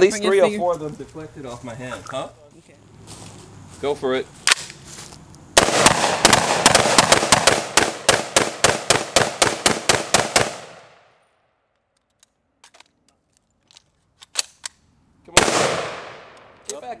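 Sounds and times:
rapid gunshots: 0:05.6 - 0:10.8.

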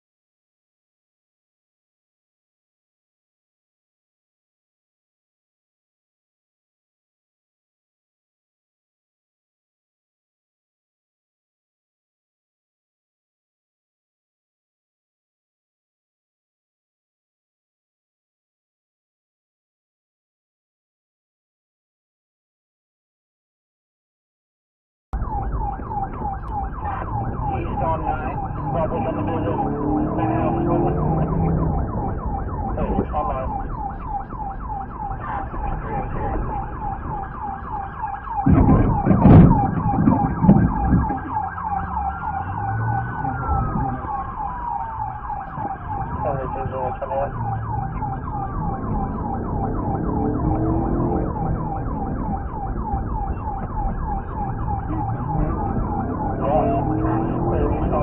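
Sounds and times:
police siren: 0:25.2 - 0:58.0
vehicle engine and road noise: 0:25.2 - 0:58.0
loud rumbling burst with knock: 0:38.4 - 0:41.1.

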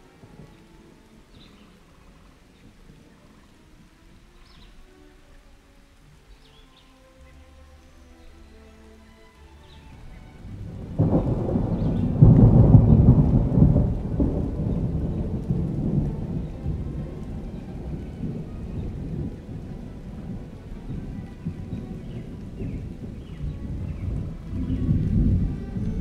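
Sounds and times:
deep rumble: 0:10.4 - 0:26.0.

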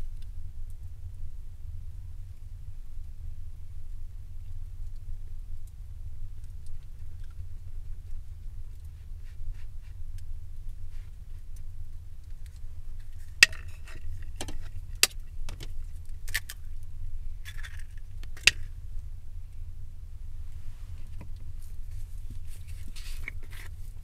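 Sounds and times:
steady low rumble: 0:00.0 - 0:24.0.

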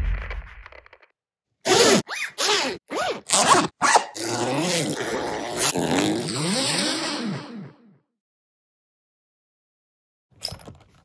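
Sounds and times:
zipper being zipped: 0:01.7 - 0:07.9.

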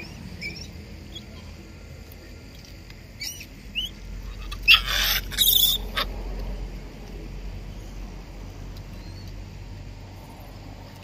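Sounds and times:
monkeys squeaking and squealing: 0:00.0 - 0:01.4, 0:03.2 - 0:06.1.

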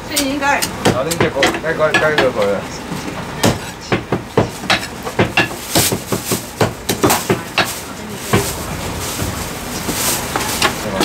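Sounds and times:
cleavers chopping on wooden blocks: 0:00.2 - 0:02.4, 0:03.4 - 0:07.7.

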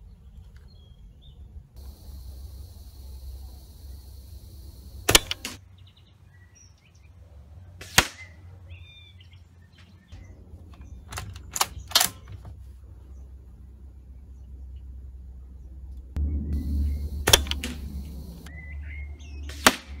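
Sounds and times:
airsoft rifle shots cracking: 0:01.8 - 0:05.6, 0:07.8 - 0:08.4, 0:16.6 - 0:18.5, 0:19.4 - 0:20.0
rifle bolt clicks: 0:05.1 - 0:05.6.

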